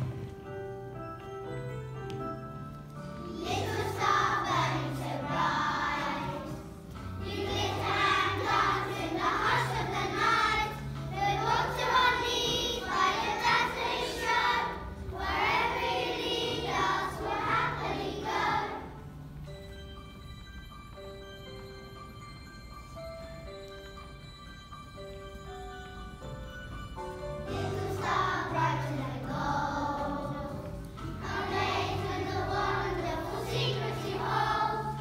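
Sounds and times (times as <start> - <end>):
recorded backing music: 0.0 - 35.0
children singing: 3.3 - 19.0, 27.5 - 35.0.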